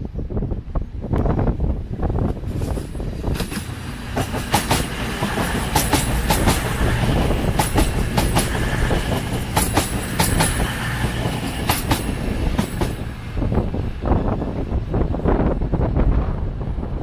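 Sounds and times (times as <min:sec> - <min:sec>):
train wheels rolling: 0:00.9 - 0:17.0
wheels clicking over rail joints: 0:02.2 - 0:13.1.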